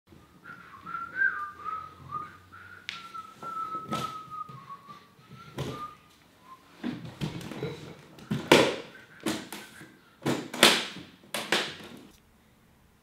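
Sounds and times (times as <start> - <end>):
person whistling a tune: 0.1 - 10.2.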